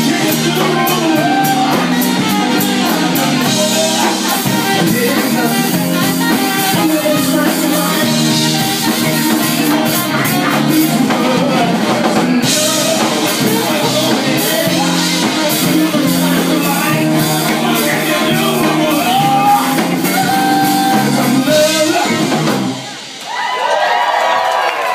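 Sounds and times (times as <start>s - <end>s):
crowd cheering: 0.0s - 4.9s, 17.5s - 24.9s
tenor saxophone: 0.0s - 11.0s
drum kit: 0.0s - 24.9s.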